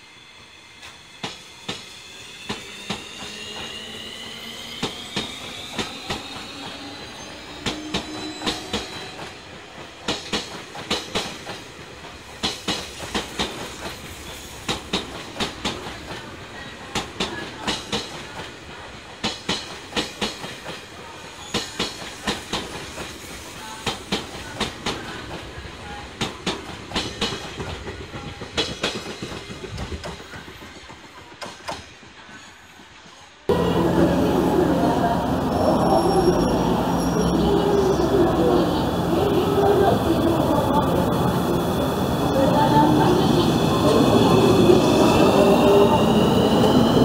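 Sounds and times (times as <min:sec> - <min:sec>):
train electric whine: 0:00.0 - 0:09.8, 0:33.5 - 0:47.0
train wheels clickety-clack: 0:00.8 - 0:03.8, 0:07.6 - 0:33.5.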